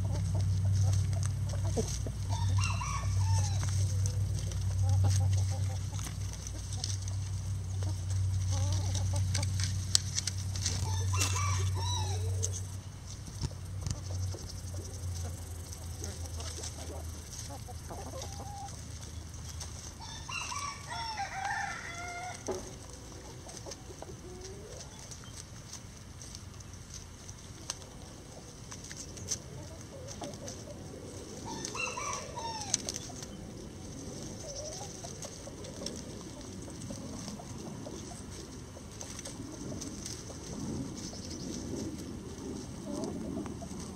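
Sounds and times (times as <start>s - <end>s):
hens clucking: 0.0s - 43.9s
rooster crowing: 2.3s - 3.8s, 10.8s - 12.5s, 20.0s - 22.6s, 31.4s - 32.9s.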